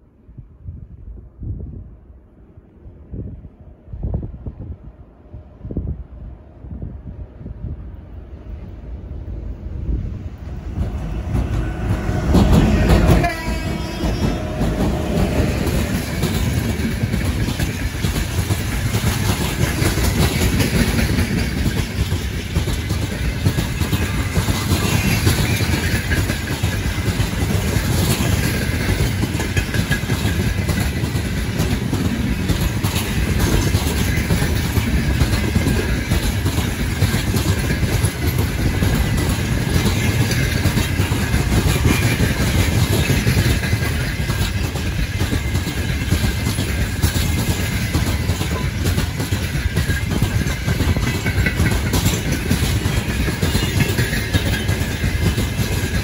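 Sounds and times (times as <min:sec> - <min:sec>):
train wheels rumbling and clattering: 0:02.9 - 0:56.0
locomotive horn: 0:11.3 - 0:16.1.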